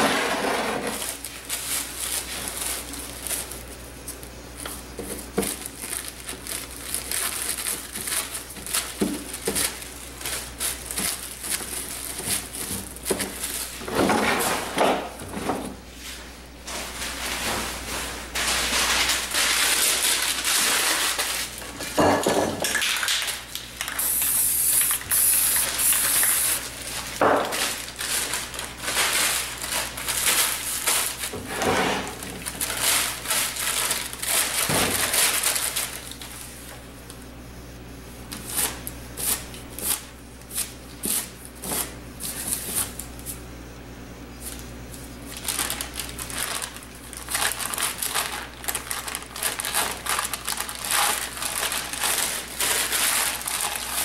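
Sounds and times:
magazine page crinkling: 0:00.9 - 0:04.3, 0:05.1 - 0:13.9, 0:18.3 - 0:21.8, 0:22.9 - 0:31.3, 0:32.1 - 0:36.7, 0:44.5 - 0:54.0
spray can hissing: 0:24.0 - 0:26.6.

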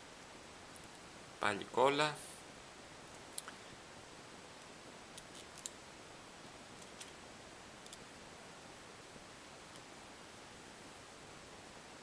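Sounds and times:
small metal screws clicking: 0:05.2 - 0:05.8.

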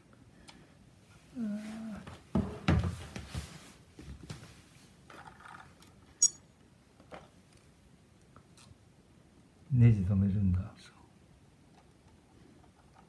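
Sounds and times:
plastic parts knocking and rattling: 0:05.1 - 0:06.0.

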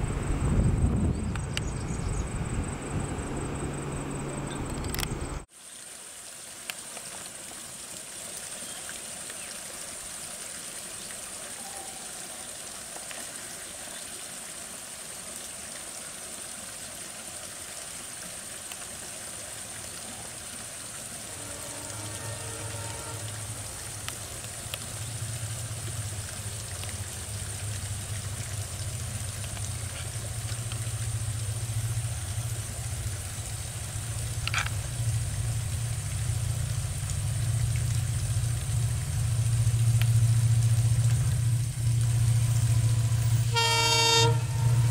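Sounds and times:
diesel locomotive engine hum: 0:00.0 - 0:05.5, 0:20.9 - 0:44.9
steady high-pitched hiss: 0:00.0 - 0:44.9.

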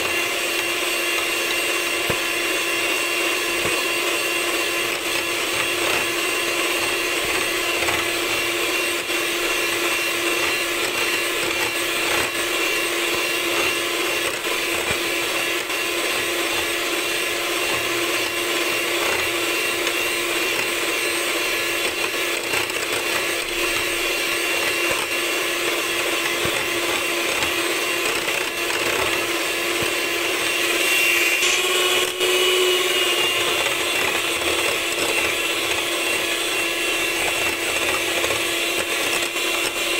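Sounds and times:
electric mixer whining: 0:00.0 - 0:39.9.

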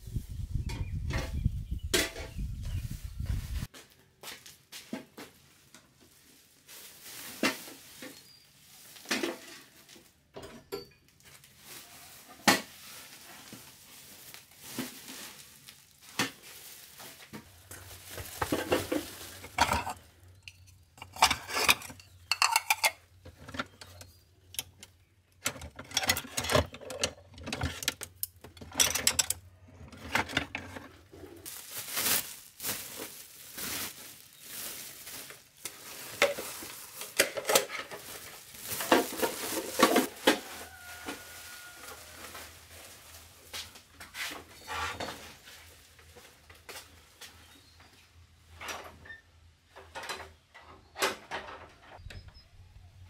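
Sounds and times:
plastic sack rustling: 0:02.8 - 0:10.3, 0:11.1 - 0:24.2, 0:28.8 - 0:46.5
dishes and utensils clinking: 0:18.4 - 0:24.7.

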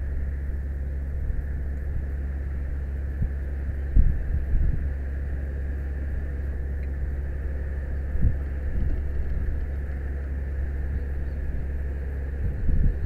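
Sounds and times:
engine and hydraulics humming: 0:00.0 - 0:13.0
wind buffeting microphone: 0:03.0 - 0:05.2, 0:07.0 - 0:13.0.

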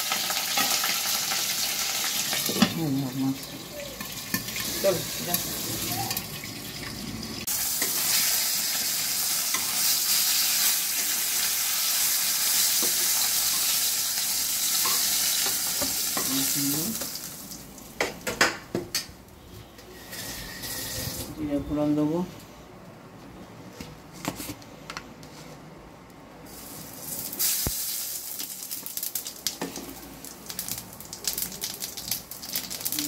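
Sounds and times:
fish frying in hot oil: 0:00.0 - 0:17.7, 0:26.5 - 0:33.0.

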